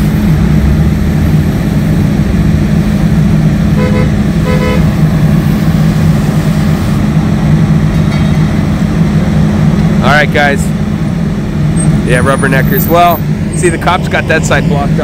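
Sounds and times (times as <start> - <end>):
vehicle engine droning: 0.0 - 15.0
car horn tooting: 3.8 - 5.0.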